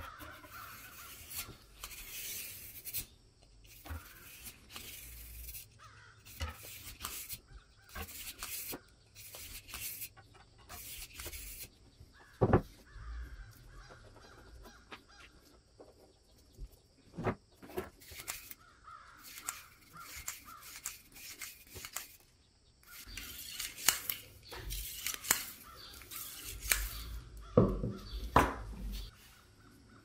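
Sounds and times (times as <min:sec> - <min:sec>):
steel rod scraping metal: 0:03.7 - 0:10.0.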